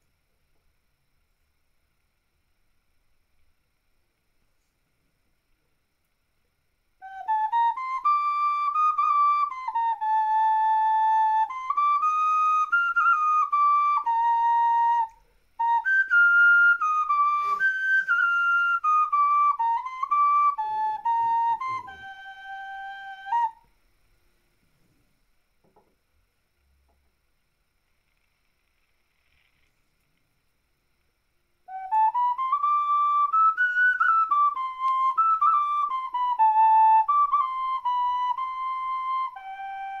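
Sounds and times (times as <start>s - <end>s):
ocarina melody: 7.0s - 23.8s, 31.6s - 40.0s.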